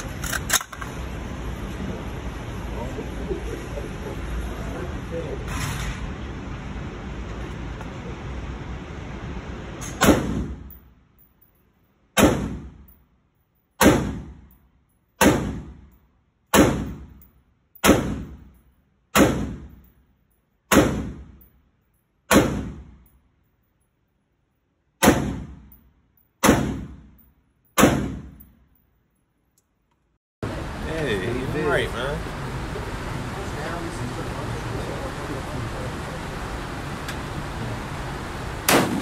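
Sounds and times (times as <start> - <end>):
rifle shots echoing indoors: 9.9 - 10.8, 12.2 - 13.0, 13.7 - 14.6, 15.2 - 19.9, 20.7 - 21.5, 22.3 - 23.1, 25.0 - 25.8, 26.4 - 28.6, 38.7 - 39.0.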